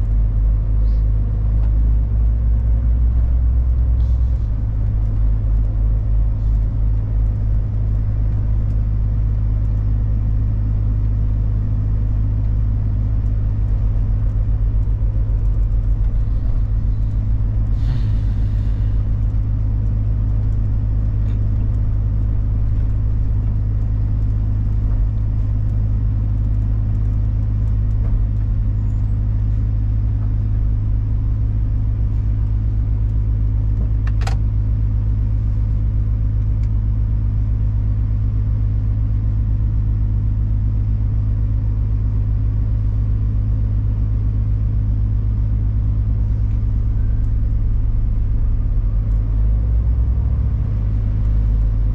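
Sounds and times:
truck diesel engine droning: 0:00.0 - 0:51.9
short hiss: 0:17.7 - 0:19.0.

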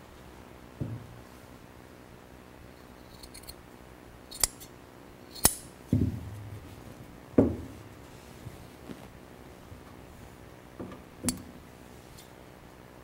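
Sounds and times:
scissors snipping padding: 0:05.3 - 0:05.6
dull thumps: 0:05.9 - 0:06.7, 0:07.3 - 0:09.1.

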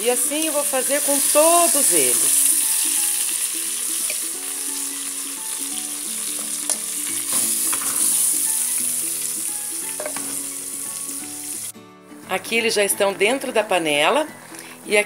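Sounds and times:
meat sizzling in a frying pan: 0:00.0 - 0:11.7.

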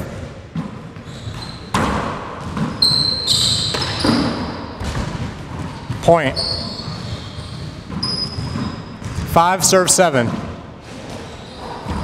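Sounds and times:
sneakers squeaking on wooden floor: 0:00.0 - 0:09.4, 0:10.2 - 0:12.0
handball smacking off walls and floor: 0:00.1 - 0:09.4, 0:10.2 - 0:12.0.

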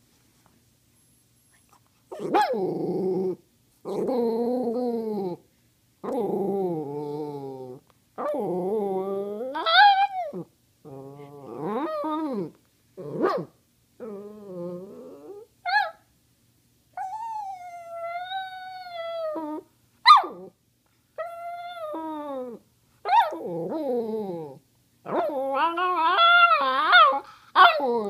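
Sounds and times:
dog howling and whining: 0:02.1 - 0:05.4, 0:06.0 - 0:16.0, 0:17.0 - 0:20.6, 0:21.2 - 0:28.0
dog yipping: 0:20.0 - 0:20.4.

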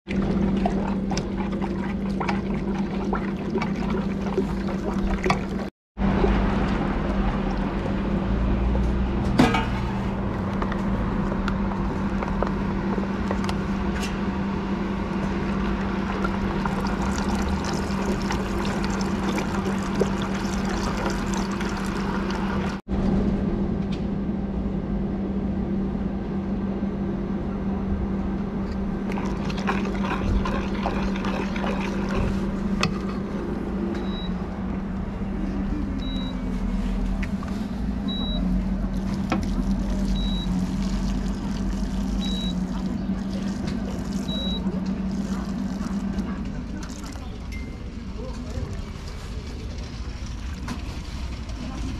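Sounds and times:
ladle stirring in a steel pot: 0:00.3 - 0:05.7, 0:29.1 - 0:33.4
liquid pouring in a thin stream: 0:15.6 - 0:22.8, 0:29.1 - 0:32.4, 0:38.8 - 0:47.5.

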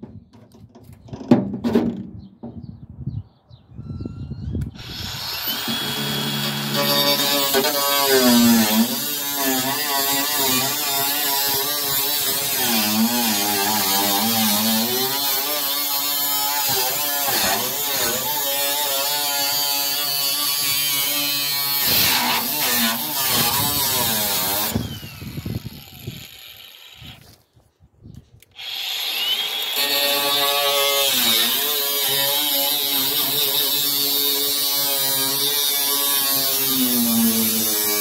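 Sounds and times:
angle grinder motor whine: 0:04.6 - 0:09.0, 0:23.1 - 0:27.3, 0:28.6 - 0:32.1.

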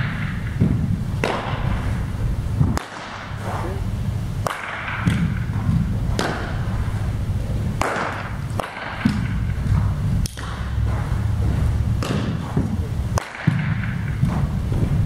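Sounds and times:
baseball bat hitting ball: 0:00.0 - 0:02.0, 0:02.6 - 0:03.5, 0:04.4 - 0:15.0
low rumble of indoor hall: 0:00.0 - 0:15.0
ball smacking into gloves: 0:12.0 - 0:14.5.

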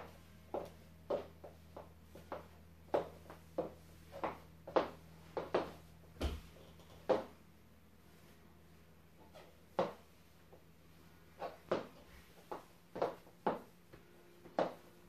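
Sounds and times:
high heels clicking on floor: 0:00.4 - 0:07.4, 0:09.8 - 0:10.0, 0:11.4 - 0:15.0.

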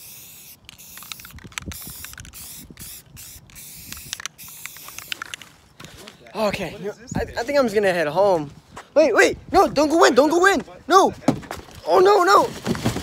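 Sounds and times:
spray paint can hissing: 0:00.0 - 0:05.5.

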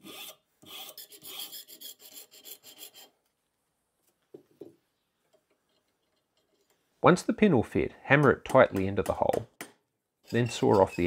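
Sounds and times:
file rasping on steel: 0:00.0 - 0:03.2.

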